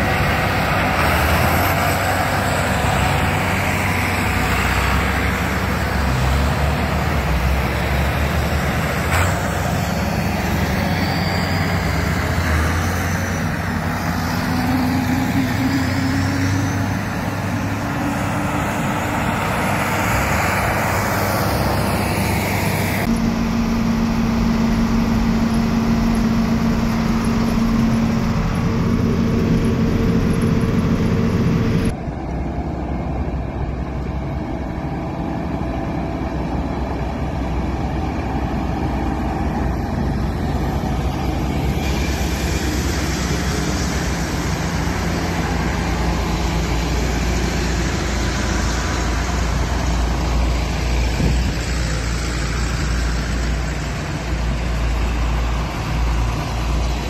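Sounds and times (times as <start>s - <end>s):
tractor engine from inside cab: 0.0s - 57.0s
tractors driving past: 0.0s - 57.0s
tyres on gravel road: 0.0s - 57.0s.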